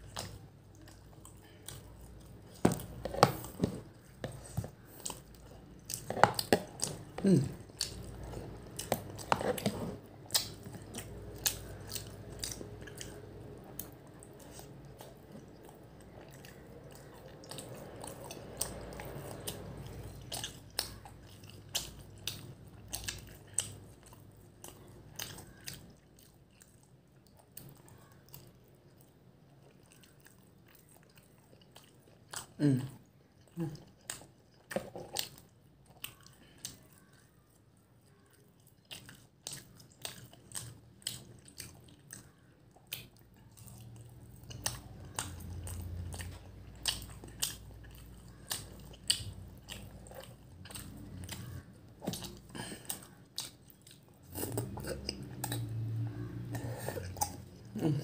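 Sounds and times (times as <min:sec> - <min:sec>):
wet chewing mouth clicks: 0:38.1 - 0:58.0.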